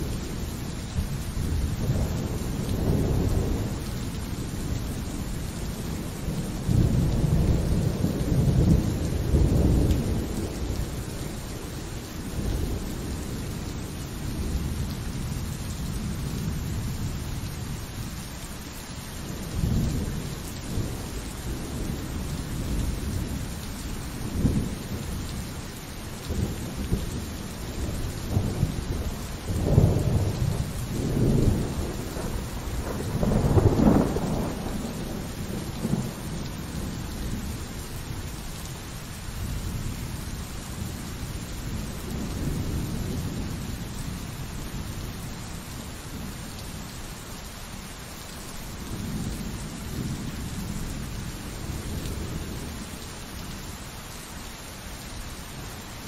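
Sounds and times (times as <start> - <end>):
pouring rain: 0.0 - 56.0
thunder rumbling: 26.2 - 38.2.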